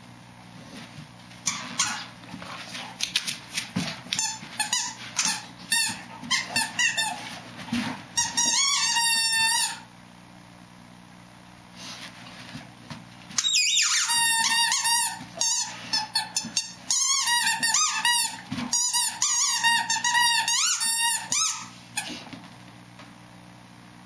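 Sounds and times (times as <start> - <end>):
dog squeaking rubber toy: 4.1 - 7.3, 8.2 - 9.8, 13.4 - 21.7.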